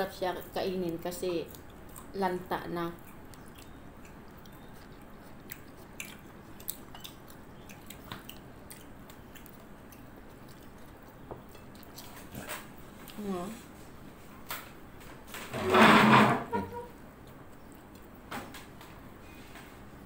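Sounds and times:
person chewing food: 0.9 - 14.4, 16.8 - 19.0
soft mouth clicks and smacks: 2.9 - 12.2, 17.2 - 18.2.

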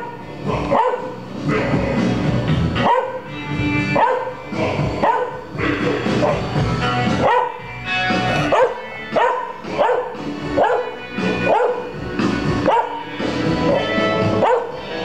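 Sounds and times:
dog howling and yipping: 8.5 - 11.9, 12.6 - 14.8.

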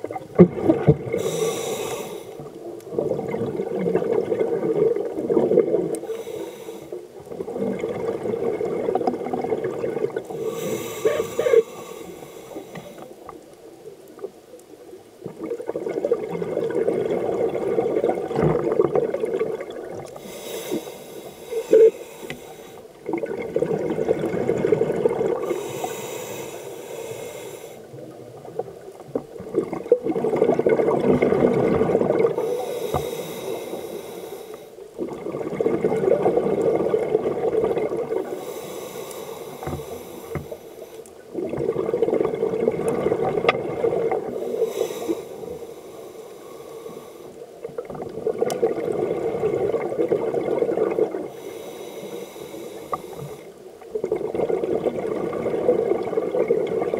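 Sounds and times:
exhaled bubbles underwater: 0.0 - 6.3, 6.9 - 14.4, 15.0 - 34.0, 34.8 - 56.9
regulator inhale hiss: 1.1 - 2.5, 6.0 - 7.0, 10.3 - 13.3, 20.1 - 23.0, 25.4 - 28.0, 32.3 - 34.8, 38.2 - 41.2, 44.3 - 47.5, 51.3 - 53.6.

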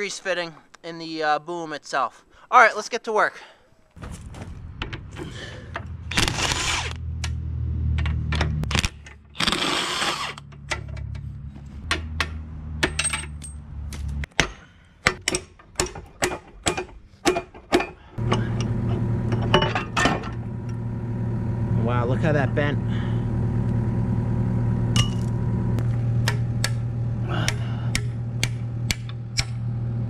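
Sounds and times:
cordless impact wrench running: 6.1 - 7.0, 8.7 - 10.5
steady low hum: 18.0 - 30.0.

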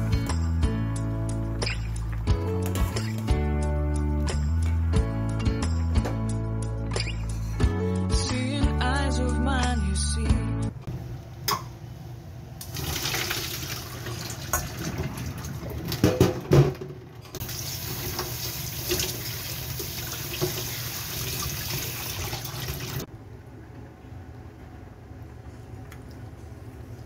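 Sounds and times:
tap water running into sink: 12.6 - 16.2, 17.4 - 23.1.

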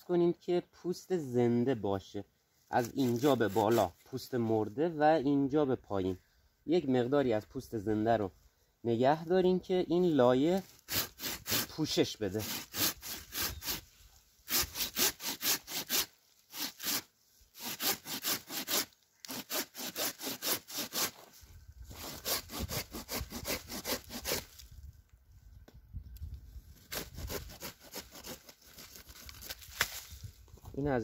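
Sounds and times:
hand saw cutting branch: 2.8 - 4.0, 10.6 - 13.9, 14.5 - 24.6, 26.8 - 30.0.

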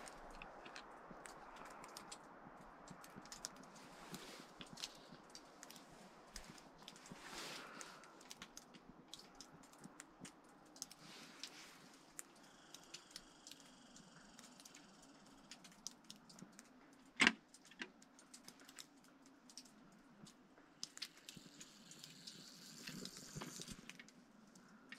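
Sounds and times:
rustle: 2.9 - 8.8.

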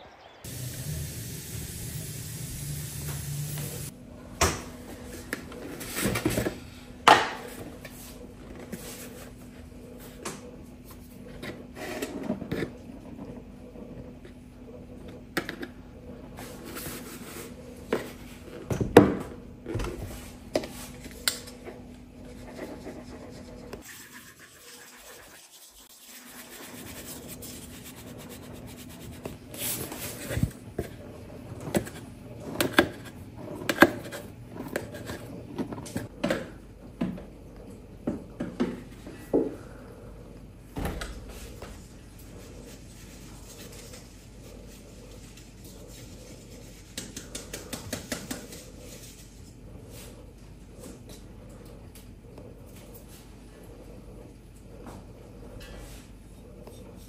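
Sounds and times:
kitchen things rubbing and scraping: 4.9 - 10.2, 10.8 - 18.7, 19.7 - 36.1, 41.3 - 51.4.

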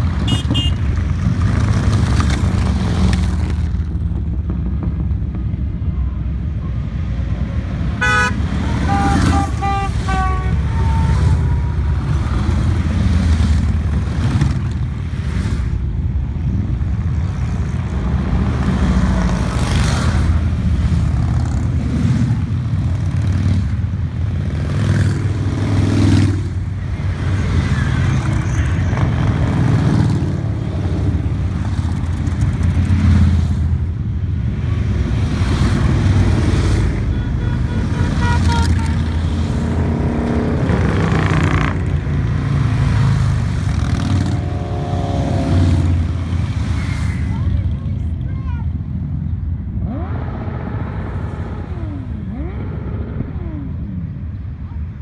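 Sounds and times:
horn tooting: 0.2 - 0.9, 8.0 - 12.2, 37.0 - 39.3
motorcycles rumbling past: 17.4 - 33.7, 38.4 - 47.5, 49.8 - 54.4.

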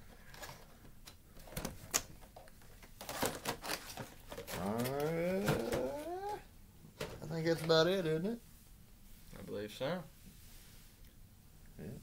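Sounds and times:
plastic packaging clicks and taps: 1.0 - 4.6.

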